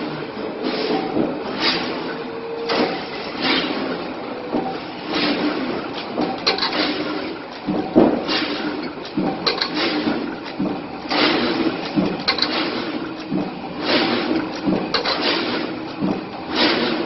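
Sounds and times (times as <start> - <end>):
steady mechanical hum: 0.0 - 17.0
machine swishing stroke: 11.1 - 13.0, 16.5 - 17.0.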